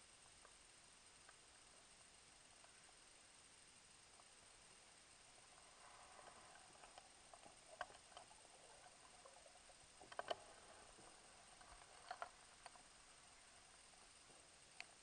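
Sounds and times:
faint underwater clicks and taps: 6.1 - 13.0.

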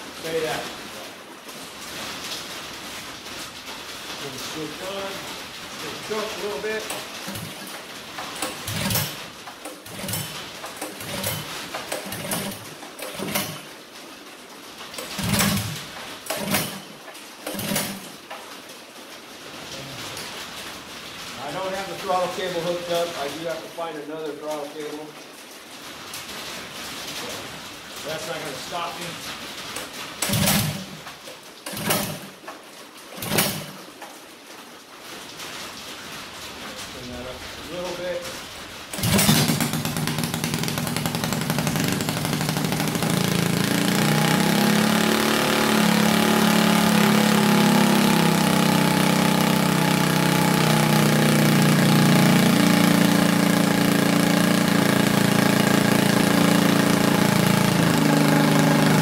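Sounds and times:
engine recoil starter cranking: 6.8 - 13.7, 15.0 - 18.1, 29.8 - 30.9, 31.6 - 32.4, 33.2 - 33.8, 38.9 - 59.0.

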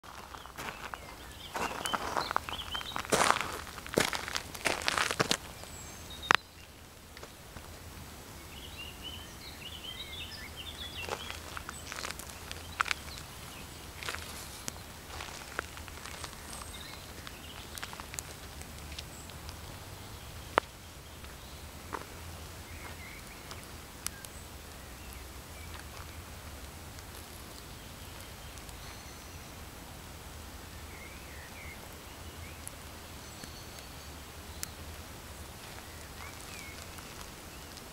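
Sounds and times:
shoes crunching on gravel: 0.0 - 6.4, 10.6 - 24.2, 35.6 - 37.9
sneakers rustling in soil: 0.0 - 8.0, 10.1 - 28.9, 35.0 - 37.9
low outdoor rumble: 0.0 - 33.2
faint bird chirps: 0.1 - 3.7, 27.6 - 29.6, 30.7 - 34.8
small bird chirping: 0.1 - 6.8, 8.4 - 26.3, 35.6 - 37.9.

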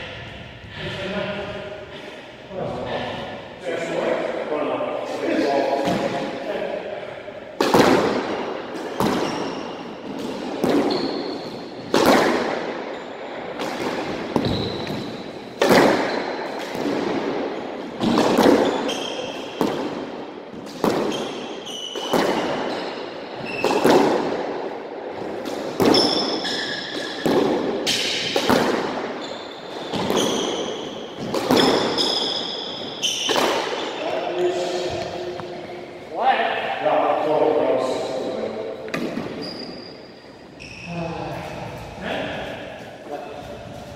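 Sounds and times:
squash ball hitting rackets and walls: 5.8 - 35.9, 38.6 - 43.9
sneakers squeaking on hardwood floor: 8.3 - 24.4, 25.1 - 35.9, 38.8 - 43.9.

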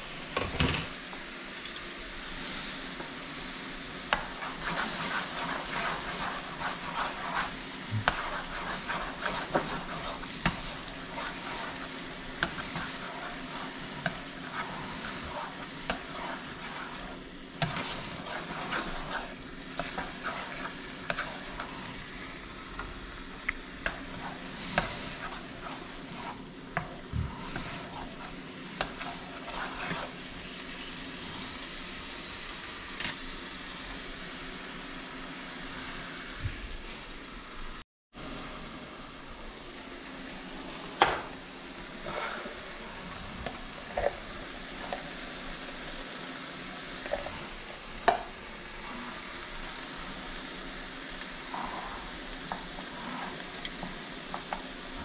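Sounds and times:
food sizzling in hot oil: 0.0 - 55.0.

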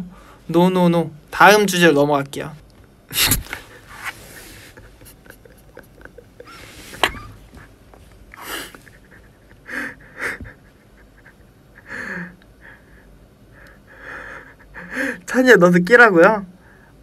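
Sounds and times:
man's stifled laughter: 3.2 - 12.4.

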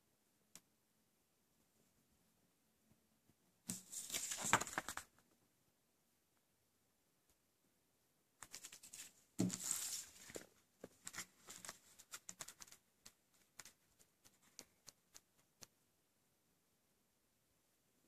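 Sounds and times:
thump and paper rustle: 9.4 - 10.5.

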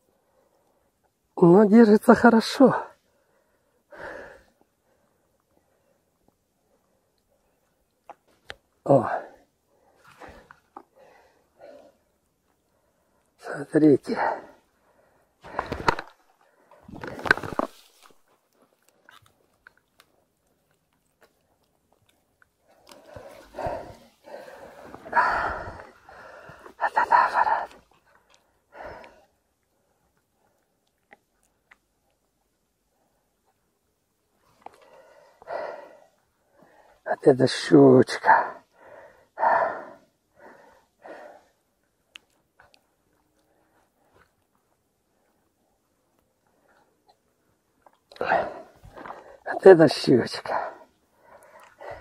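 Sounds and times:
person breathing: 3.0 - 7.7, 9.0 - 13.4, 14.1 - 18.2, 22.6 - 30.6, 34.6 - 37.1, 38.2 - 41.8, 48.1 - 49.5, 50.4 - 52.0
faint clicks and rustles: 14.7 - 26.8.

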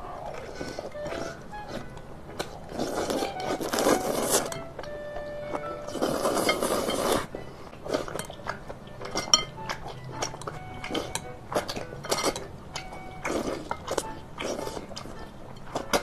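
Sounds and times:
chewing and mouth sounds: 0.0 - 16.0
wet slurping of noodles: 2.7 - 4.4, 5.9 - 7.3.

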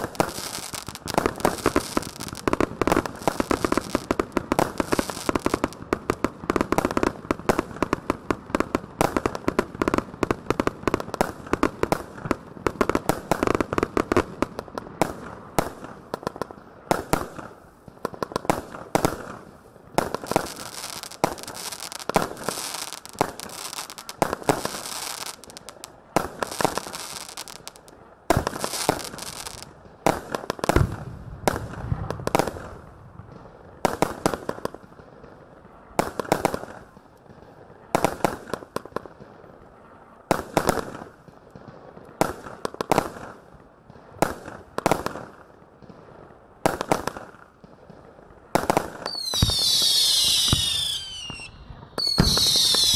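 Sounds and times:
firework crackling: 0.0 - 52.9
firework shots and bangs: 26.2 - 35.4, 46.6 - 52.9.

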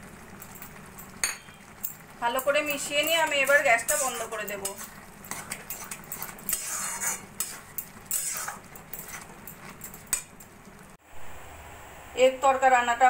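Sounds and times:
spatula stirring thick dal: 2.5 - 10.4
spatula scraping metal pan: 3.2 - 9.8.

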